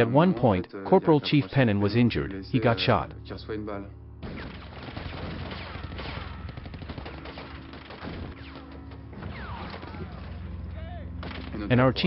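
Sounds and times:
rifle and machine gun fire: 4.2 - 10.3.

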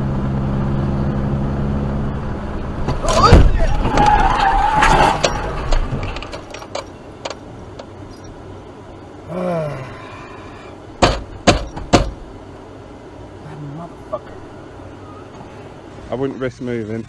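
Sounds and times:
car grinding and scraping: 0.0 - 17.0
clicks and ticks from wrecked car: 2.9 - 7.9
loud sharp knocks: 11.0 - 12.2.

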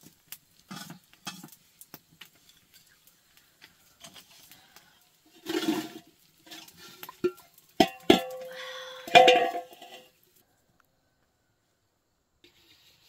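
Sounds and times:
metal cookware clanking: 0.7 - 1.5, 5.4 - 10.1.

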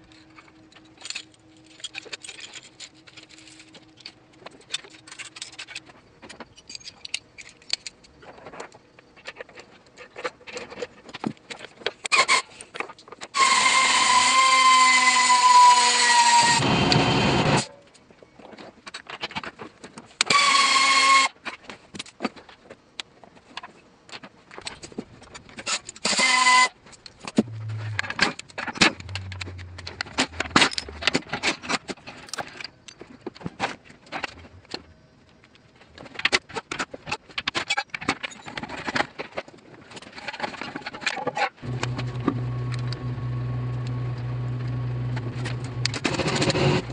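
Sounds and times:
metal clicks and clinks: 6.5 - 8.1, 27.9 - 33.0
impact wrench whining and hammering: 27.4 - 31.6.

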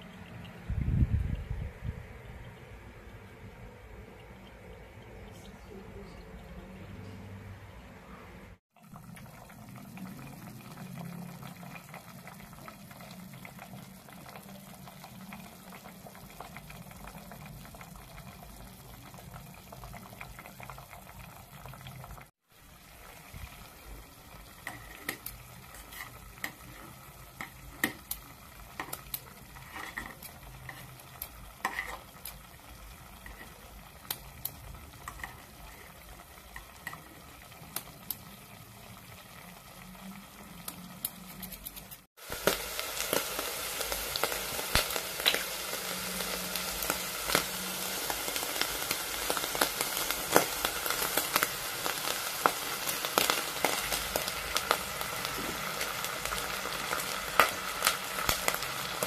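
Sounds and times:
food bubbling in saucepan: 8.5 - 59.0.

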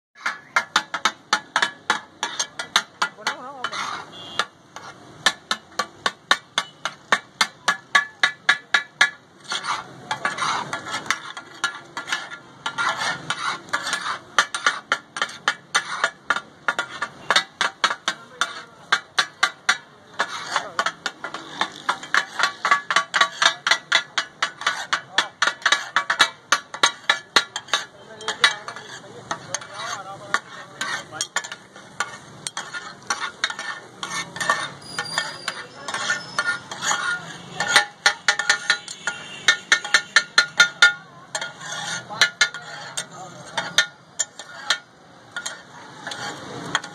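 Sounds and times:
metal spatulas clattering on griddle: 0.2 - 46.9.

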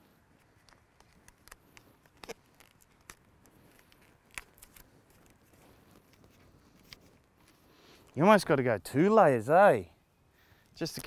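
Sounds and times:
duct tape clicks and rustles: 0.3 - 8.2.

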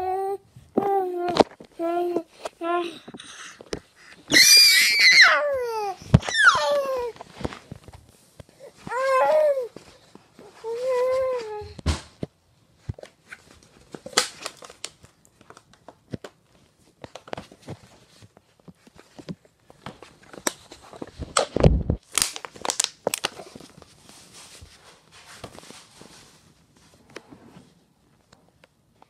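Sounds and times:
thump: 11.8 - 12.2
plastic bottle crinkling: 19.9 - 24.5.

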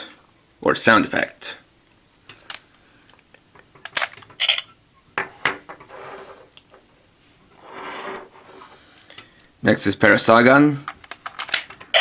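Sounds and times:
plastic toy clicks and snaps: 11.0 - 11.8.

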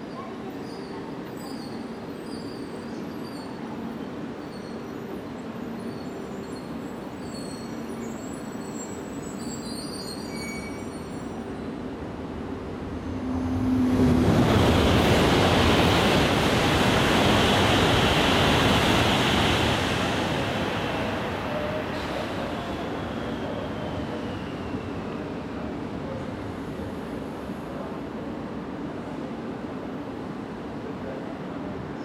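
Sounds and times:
train rushing past: 12.1 - 28.8.

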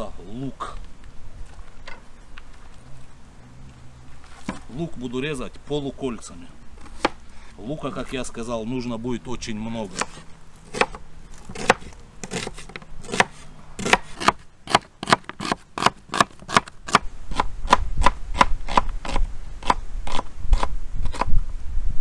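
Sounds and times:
knife slicing onion: 9.8 - 21.3.

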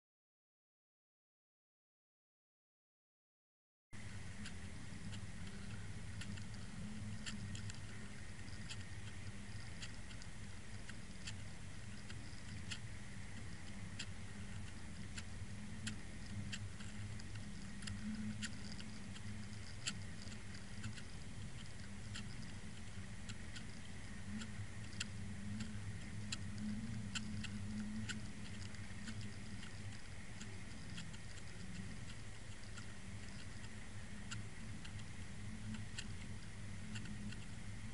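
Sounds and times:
sharp clicks: 4.4 - 37.6.

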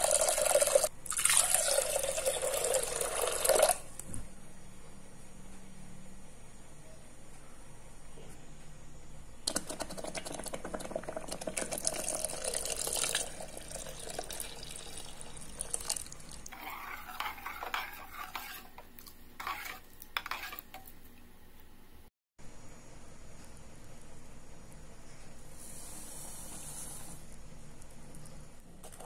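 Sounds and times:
spoon scraping metal pot: 16.5 - 20.9.

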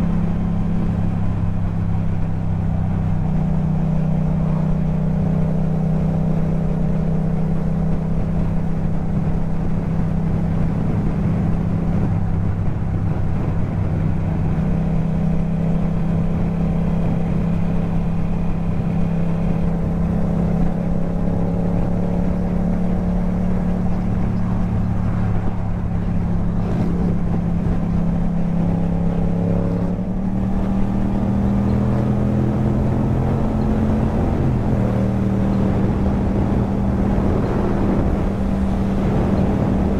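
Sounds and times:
motorcycle engine cruising: 0.0 - 39.9.

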